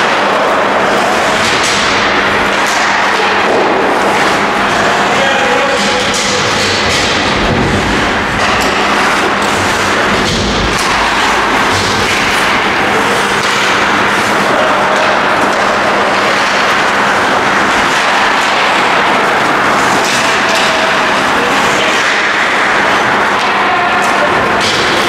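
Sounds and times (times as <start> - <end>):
hockey sticks and puck knocks: 0.0 - 25.0
steady low hum: 0.0 - 25.0
skates scraping ice: 2.5 - 25.0.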